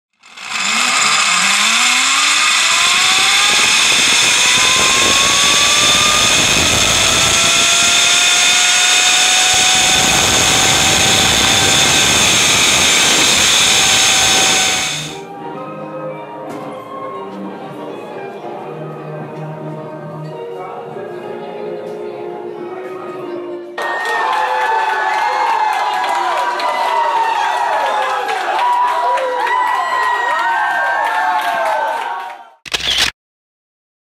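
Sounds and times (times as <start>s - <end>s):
zip-line pulleys whining on cable: 0.1s - 15.3s, 32.7s - 33.1s
rushing noise: 0.2s - 15.2s.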